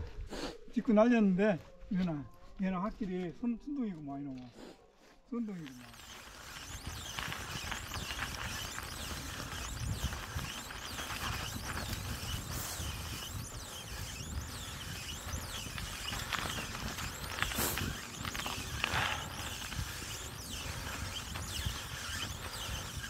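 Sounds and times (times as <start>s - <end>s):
bicycle tyres crunching snow: 1.4s - 23.0s
wind rumble on microphone: 5.8s - 23.0s.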